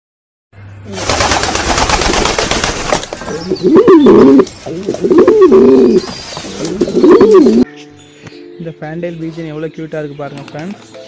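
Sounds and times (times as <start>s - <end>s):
pigeon wings flapping: 0.9s - 3.3s
pigeon cooing: 3.2s - 7.7s.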